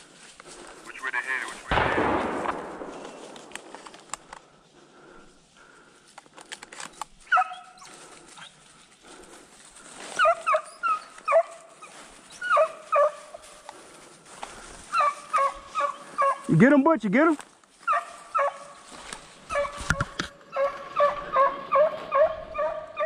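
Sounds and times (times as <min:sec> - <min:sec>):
sharp clicks: 0:01.7 - 0:04.5, 0:06.1 - 0:07.2
distant hounds baying: 0:07.2 - 0:16.5, 0:17.8 - 0:23.0.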